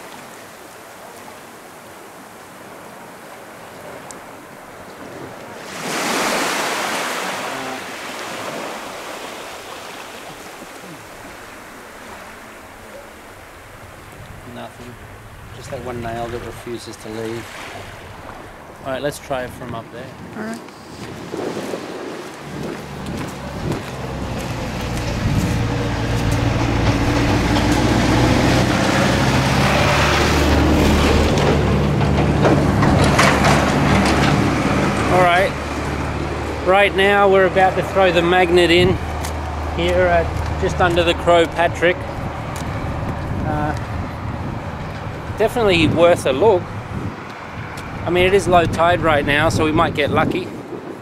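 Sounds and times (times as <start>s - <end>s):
sea wave breaking on shore: 0.0s - 18.7s
vehicle engine droning: 22.5s - 48.4s.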